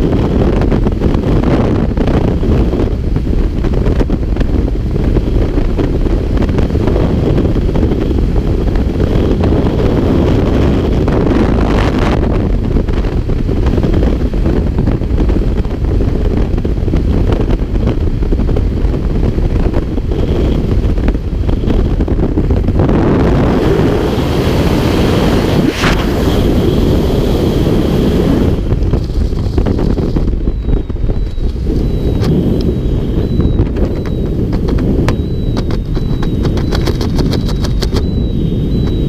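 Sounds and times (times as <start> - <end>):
wind buffeting microphone: 0.0 - 39.0.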